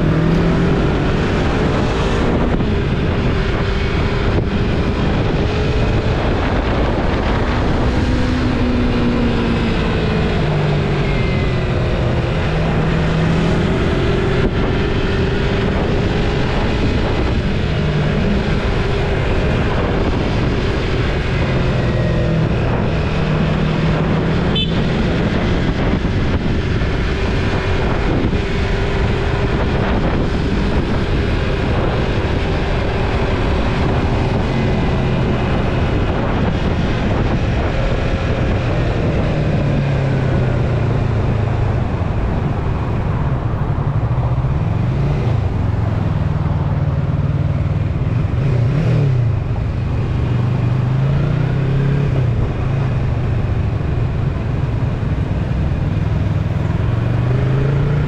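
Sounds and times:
motorcycle engine running: 0.0 - 51.6
wind rush on microphone: 0.0 - 58.0.

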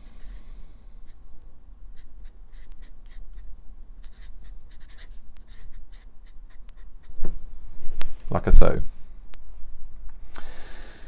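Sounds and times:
marker pen writing: 2.0 - 7.2.

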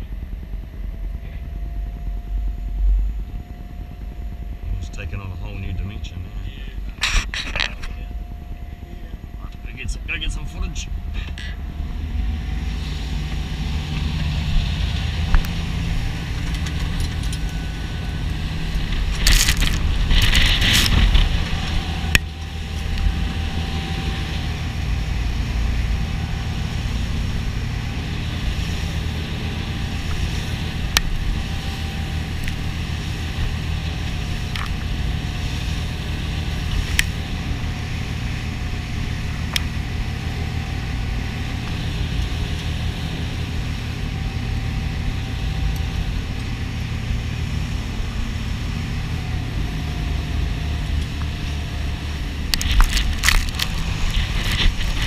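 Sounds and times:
boat engines droning: 0.0 - 55.0
hull rushing through water: 11.6 - 55.0.

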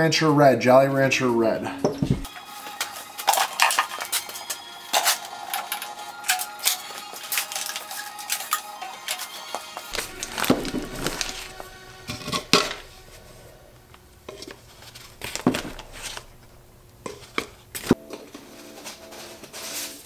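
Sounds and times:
faint background music: 0.0 - 20.0
plastic bag rustling: 9.9 - 20.0.

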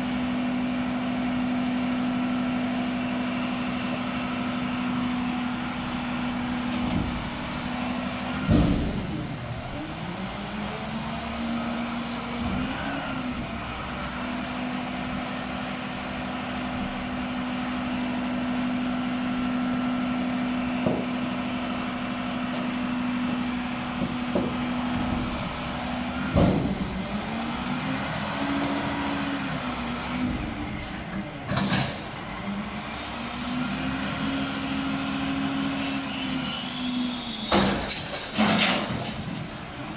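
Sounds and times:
garbage truck engine drone: 0.0 - 39.9
metal clanks from bin: 37.5 - 39.5.

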